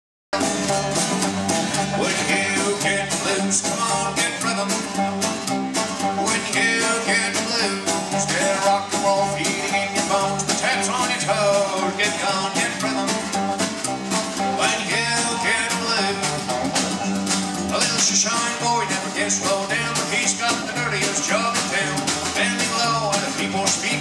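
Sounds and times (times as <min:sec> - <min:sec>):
acoustic guitar strumming: 0:00.3 - 0:24.0
drum kit beat: 0:00.3 - 0:24.0
upright double bass: 0:00.3 - 0:24.0.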